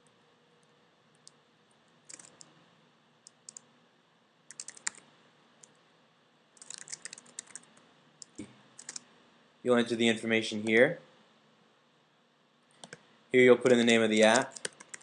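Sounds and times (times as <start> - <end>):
computer keyboard typing: 2.0 - 2.5, 3.3 - 3.7, 4.5 - 5.8, 6.6 - 9.0, 12.8 - 13.0, 14.3 - 15.0.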